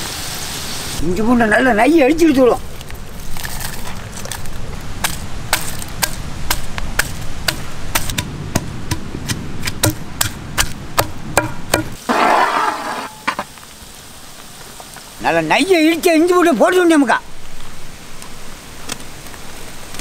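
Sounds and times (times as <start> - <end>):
onions sizzling in oil: 0.0 - 1.0
pestle pounding in stone mortar: 5.0 - 12.0.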